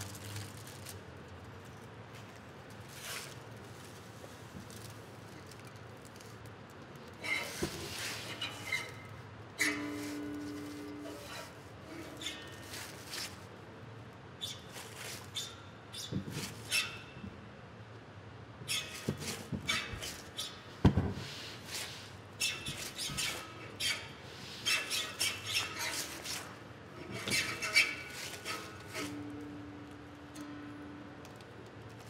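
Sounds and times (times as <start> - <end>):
rubbing and scraping: 7.2 - 13.6, 18.7 - 29.4.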